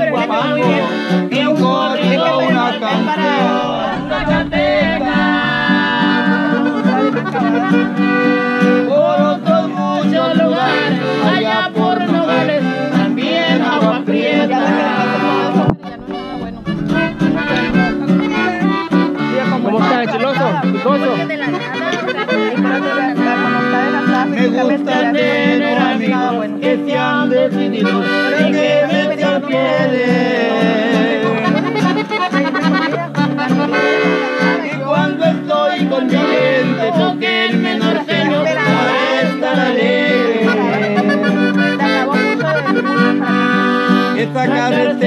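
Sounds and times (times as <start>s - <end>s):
strummed string instrument: 0.0s - 45.0s
button accordion playing: 3.5s - 9.3s, 10.3s - 13.8s, 14.5s - 24.7s, 27.7s - 29.0s, 31.3s - 45.0s.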